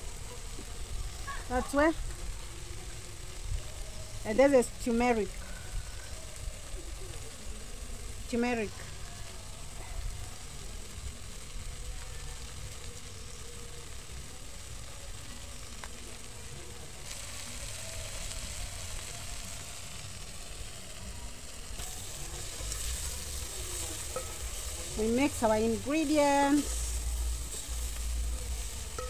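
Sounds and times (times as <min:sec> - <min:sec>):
fish frying in a pot: 0:00.0 - 0:29.0
spoon stirring pot: 0:22.0 - 0:29.0.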